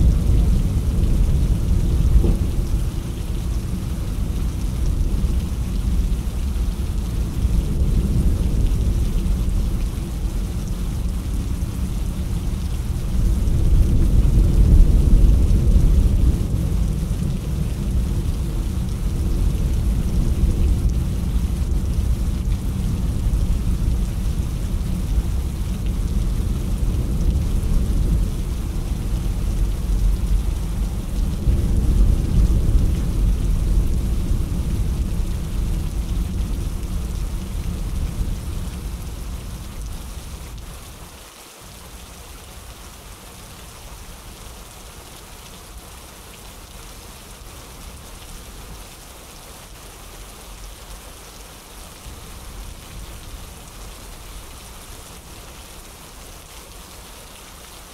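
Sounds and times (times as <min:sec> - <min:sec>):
low rumble of thunder: 0:00.0 - 0:41.1
rain falling: 0:00.0 - 0:57.9.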